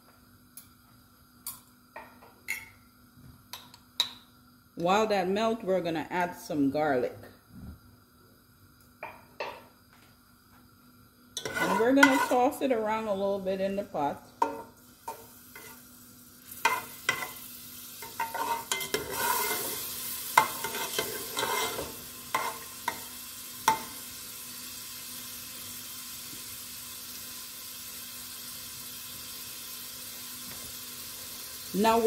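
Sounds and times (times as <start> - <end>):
spatula scraping a pot: 11.4 - 12.6, 15.5 - 15.8, 18.0 - 22.7
butter and garlic sizzling: 11.4 - 32.0.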